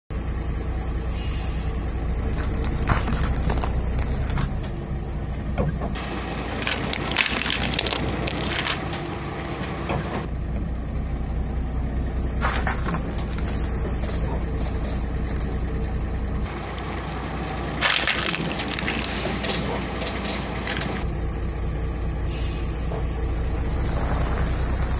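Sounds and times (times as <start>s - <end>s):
truck engine rumble: 0.1s - 24.9s
plastic boxes crushed by tyre: 2.3s - 4.6s, 6.6s - 8.9s, 12.4s - 13.8s, 17.8s - 19.1s.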